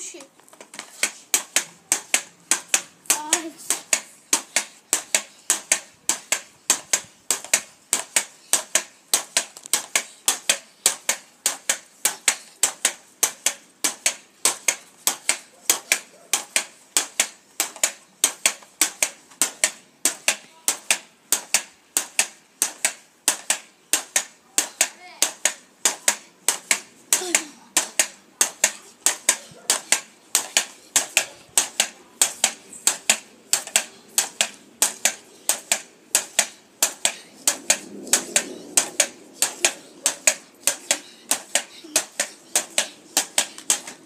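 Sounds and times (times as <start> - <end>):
pogo stick bouncing on brick: 0.0 - 44.0.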